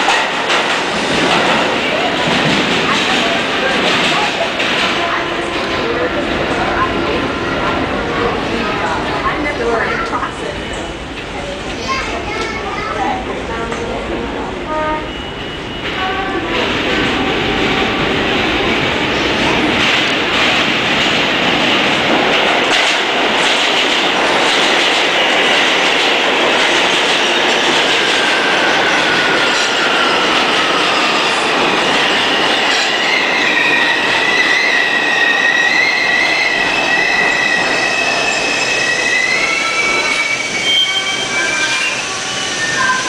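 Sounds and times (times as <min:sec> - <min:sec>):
subway train rumbling: 0:00.0 - 0:43.0
high-pitched braking tones: 0:27.9 - 0:43.0.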